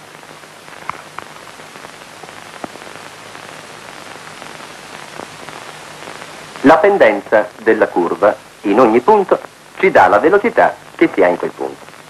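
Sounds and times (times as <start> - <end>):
faint clicks and crackles: 0.0 - 6.7, 10.8 - 12.0
film soundtrack hiss: 0.0 - 12.0.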